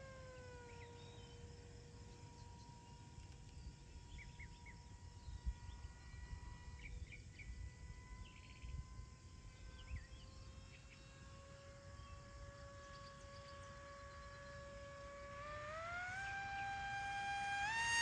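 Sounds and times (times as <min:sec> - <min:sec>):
faint steady hum: 0:00.0 - 0:18.0
small birds chirping: 0:02.2 - 0:15.2.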